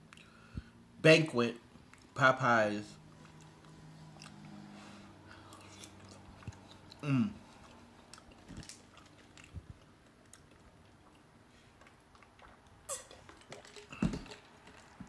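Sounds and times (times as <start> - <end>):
man chewing food: 1.6 - 2.2, 3.0 - 15.0.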